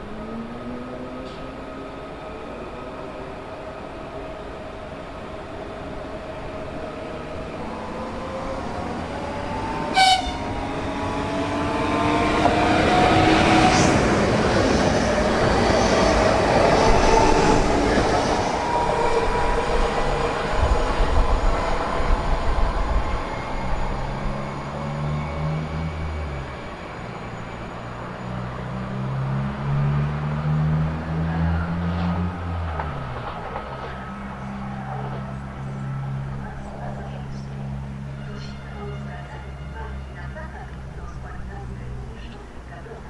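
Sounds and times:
train motor whine and rail noise: 0.0s - 42.9s
train horn blast: 9.8s - 10.8s, 38.0s - 40.6s
wheel clatter over rail joints: 32.0s - 35.4s.

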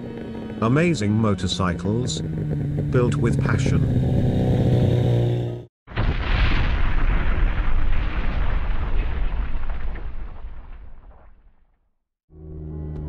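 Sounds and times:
motorcycle engine running: 0.0s - 5.7s
rumbling explosion sound effect: 5.9s - 11.7s.

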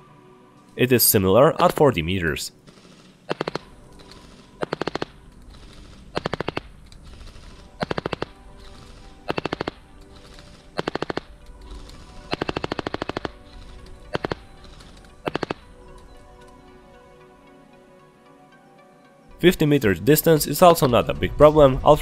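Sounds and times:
airsoft gun firing full-auto bursts: 2.7s - 3.7s, 4.6s - 8.4s, 9.3s - 11.3s, 12.3s - 13.3s, 15.2s - 15.6s.

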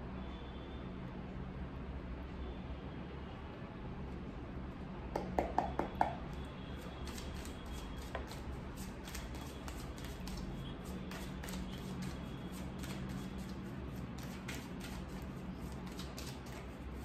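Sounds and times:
cards shuffling patter: 7.0s - 17.0s.

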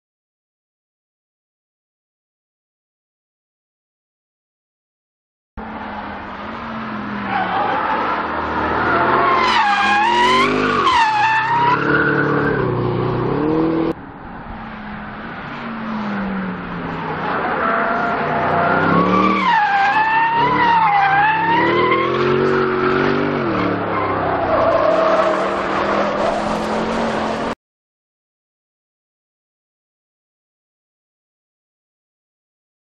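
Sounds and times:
car engine revving: 5.6s - 27.6s
tyres squealing: 7.2s - 12.7s.

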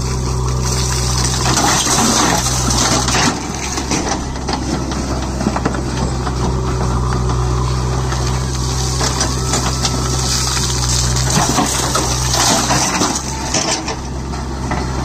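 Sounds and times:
rock and soil pouring rattle: 0.0s - 5.4s, 8.2s - 14.1s
diesel engine running: 0.0s - 15.0s.

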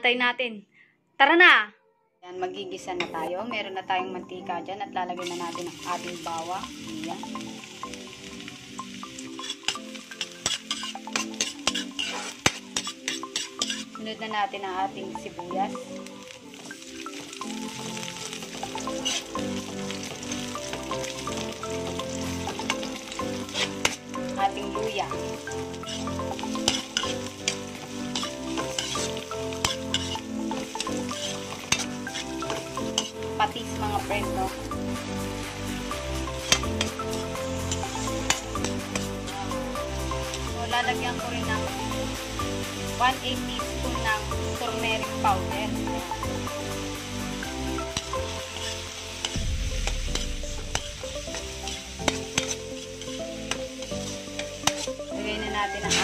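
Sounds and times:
sizzling in hot oil: 5.0s - 56.0s
spatula stirring and scraping: 9.2s - 14.0s, 18.6s - 24.4s, 25.0s - 33.3s, 36.3s - 39.6s, 47.8s - 56.0s
spatula clinking on pan: 9.4s - 13.8s.

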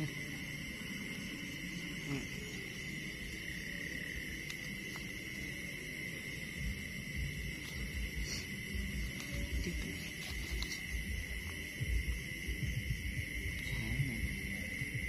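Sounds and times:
insects and frogs chorus: 0.0s - 15.0s
low rumbling thumps: 11.0s - 13.6s.

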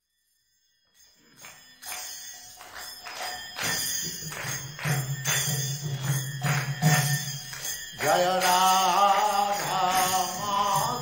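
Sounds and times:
hand cymbals struck in a beat: 1.0s - 11.0s.

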